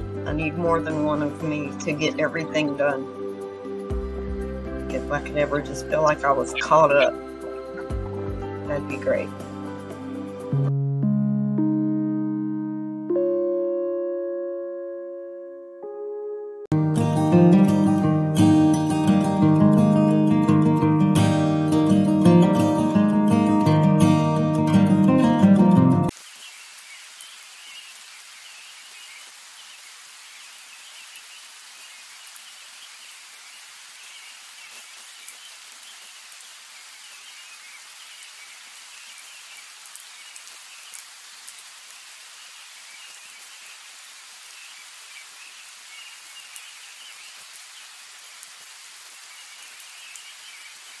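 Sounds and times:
rain hissing: 0.0 - 10.7, 26.1 - 51.0
rain drop ticks: 39.1 - 41.9, 45.2 - 51.0.

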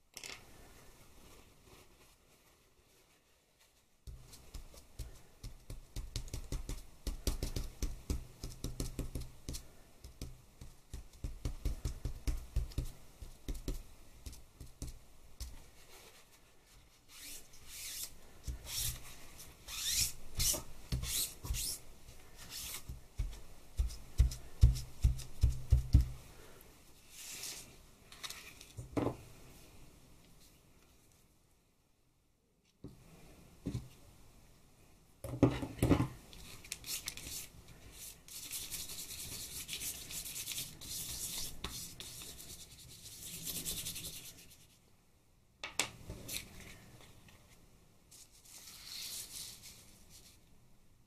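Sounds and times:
cloth rubbing over paper: 1.1 - 4.9, 48.1 - 50.4.

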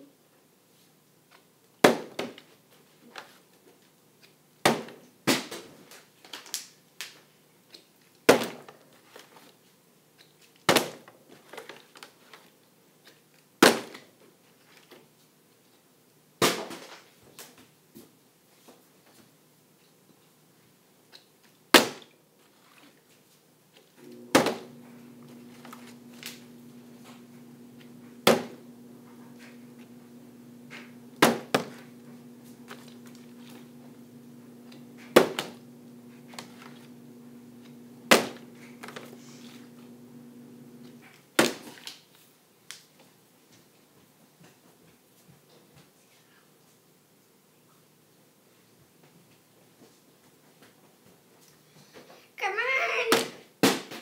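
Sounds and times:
steady low hum: 24.0 - 41.0.

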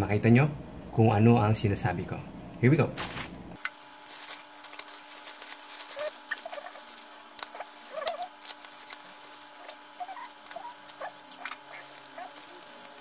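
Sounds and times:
plastic packaging crinkling: 3.0 - 13.0.

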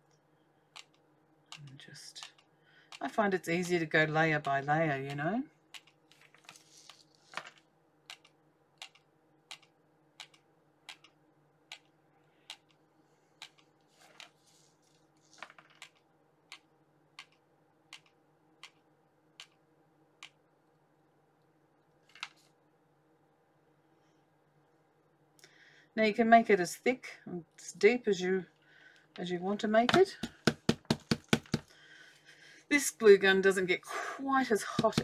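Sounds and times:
faint steady hum: 0.0 - 35.0
soft handling rustles: 13.0 - 15.7.

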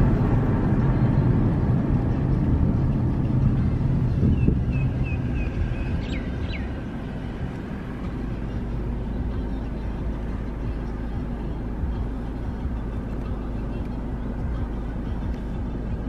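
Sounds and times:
car cabin road noise: 0.0 - 16.0.

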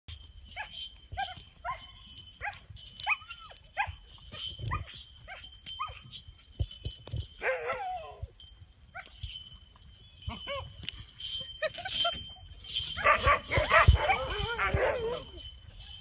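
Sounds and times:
dog barking in high yips: 0.6 - 4.0, 4.7 - 6.0, 7.4 - 8.2, 13.0 - 15.4.

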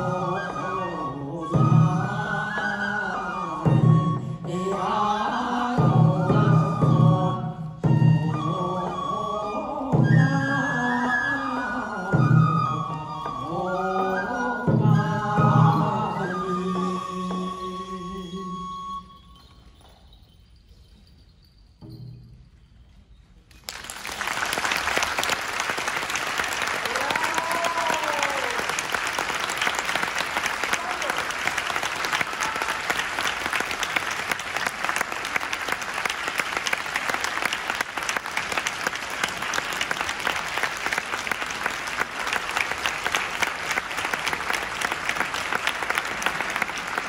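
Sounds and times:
audience applause: 23.5 - 47.0.

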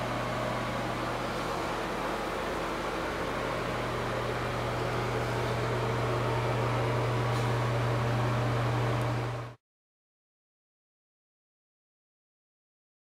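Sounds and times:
mechanical hum: 0.0 - 9.6.

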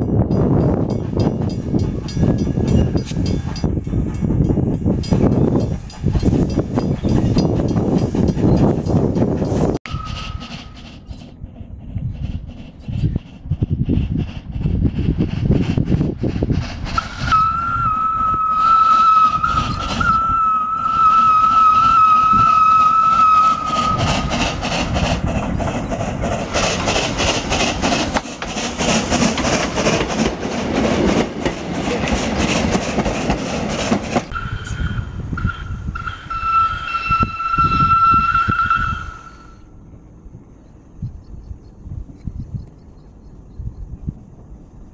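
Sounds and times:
steam engine chuffing: 0.9 - 37.0
steam locomotive whistle: 9.9 - 10.8, 17.0 - 24.6, 34.3 - 39.7.

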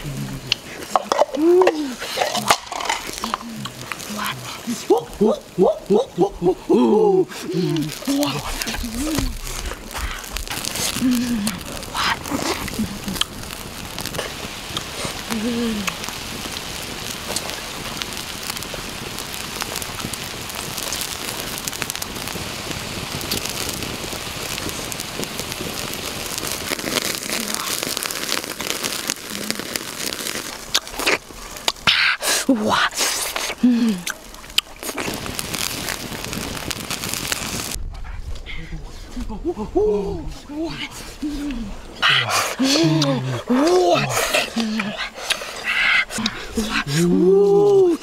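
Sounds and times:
octopus sizzling on hot rock: 0.0 - 38.2, 38.9 - 48.0.

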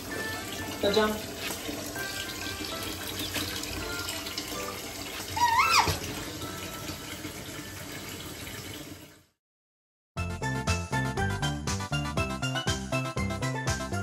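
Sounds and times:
tap water splashing into tub: 0.0 - 9.0
short high squeaky call: 5.4 - 6.0.

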